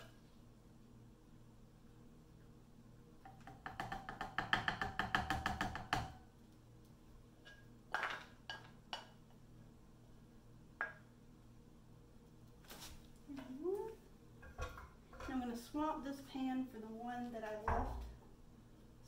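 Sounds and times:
metal utensil knocking on frying pan: 3.2s - 6.2s.

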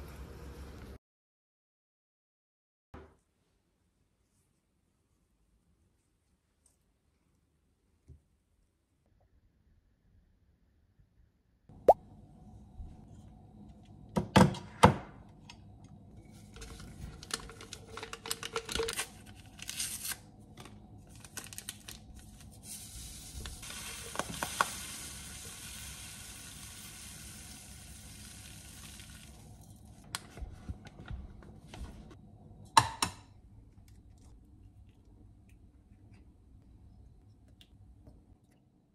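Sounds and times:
paper packet rustling: 16.6s - 24.5s
sugar pouring into glass jug: 21.3s - 30.1s.

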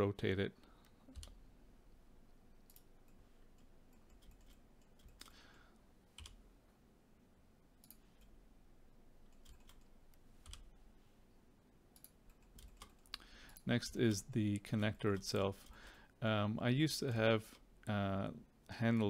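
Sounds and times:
computer keyboard and mouse clicks: 0.8s - 1.4s, 2.7s - 5.4s, 9.3s - 10.7s, 12.0s - 13.2s.

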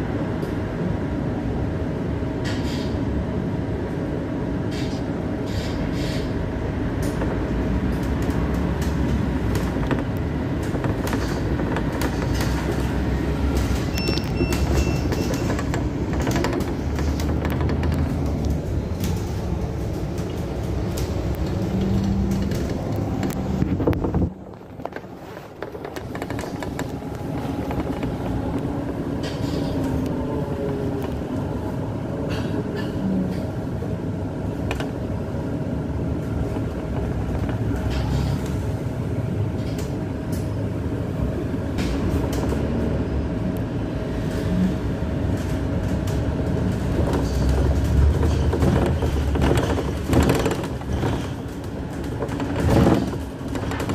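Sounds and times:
bus engine and road noise: 0.0s - 53.9s
bodywork rattling and clicking: 7.0s - 29.7s, 45.4s - 53.9s.

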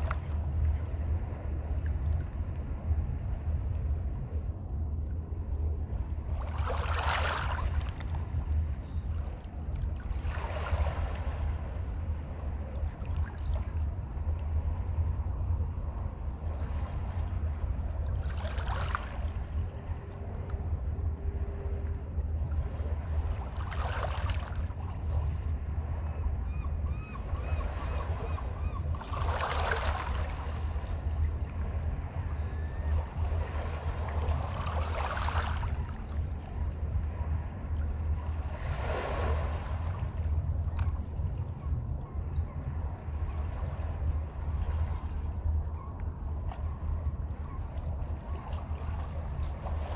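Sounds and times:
steady low rumble: 0.0s - 49.9s
small waves washing onto shore: 6.3s - 8.8s, 9.8s - 13.8s, 18.2s - 20.1s, 22.6s - 26.0s, 28.9s - 41.2s
faint bird chirps: 41.6s - 43.1s.

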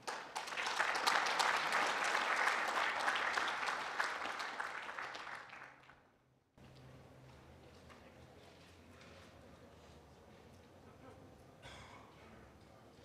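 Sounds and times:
audience applauding: 0.0s - 6.0s
faint low hall hum: 0.0s - 13.0s.

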